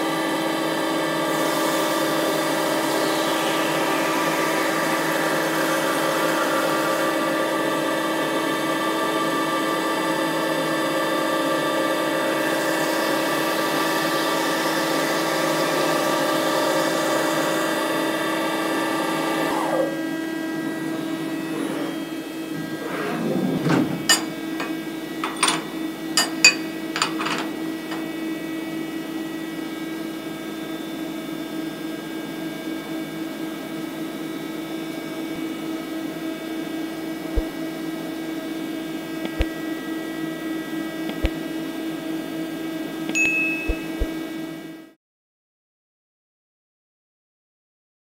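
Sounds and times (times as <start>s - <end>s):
milling machine cutting: 15.0s - 28.3s
machine steady hum: 19.9s - 30.2s
sharp clicks and knocks: 23.6s - 28.1s, 41.1s - 41.4s
short falling whine: 43.2s - 44.3s.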